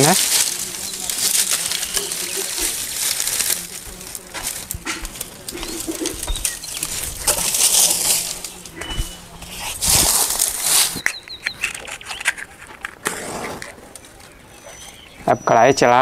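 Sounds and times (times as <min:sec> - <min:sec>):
dove cooing: 0:00.0 - 0:10.0
dry grass rustling and crackling: 0:00.0 - 0:15.4.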